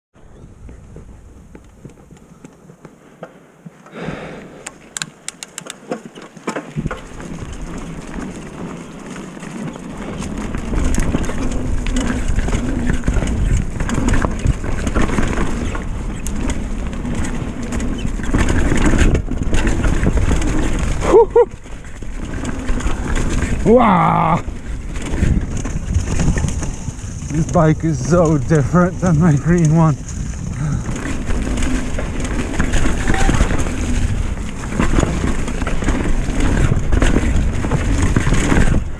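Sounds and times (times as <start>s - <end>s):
wind rumble on microphone: 0.2s - 2.4s, 6.7s - 38.9s
bike tyres rolling over leaves: 0.2s - 38.9s
sharp clicks: 4.6s - 6.0s
bike clattering and knocking: 4.9s - 23.8s, 24.5s - 38.9s.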